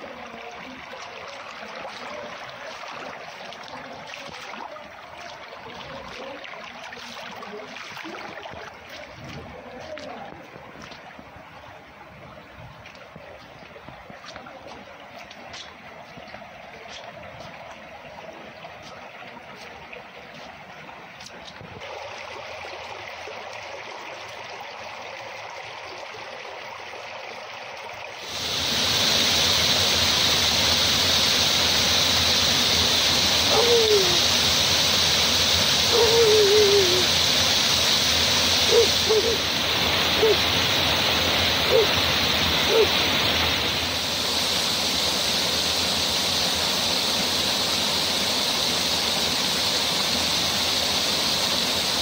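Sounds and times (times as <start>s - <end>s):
runoff running along gutter: 28.2s - 52.0s
faint whistle-like calls: 33.0s - 40.9s, 41.5s - 43.6s.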